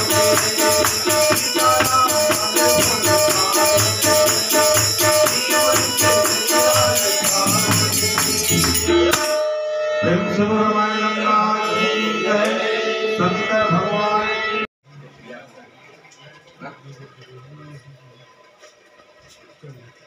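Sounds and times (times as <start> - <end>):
tabla drums: 0.0 - 9.4
jingling hand cymbals: 0.0 - 9.5
harmonium: 0.0 - 14.7.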